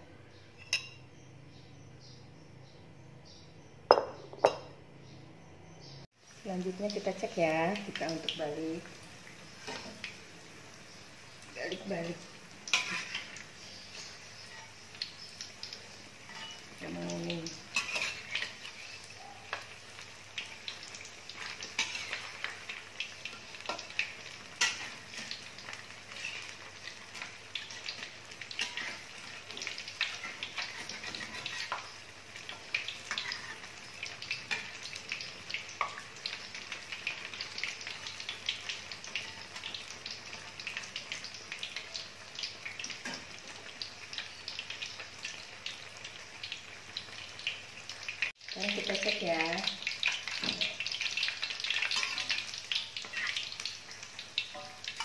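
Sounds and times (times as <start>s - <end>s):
fritters sizzling in hot oil: 5.8s - 55.0s
metal spatula scraping wok: 12.6s - 14.8s, 16.2s - 16.8s, 17.6s - 19.1s, 21.3s - 22.7s, 23.3s - 35.0s, 51.7s - 53.6s.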